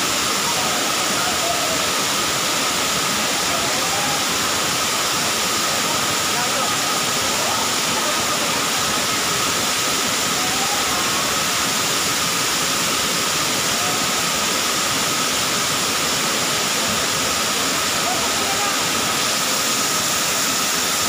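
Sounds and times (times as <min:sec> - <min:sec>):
waterfall rushing into pool: 0:00.0 - 0:21.0.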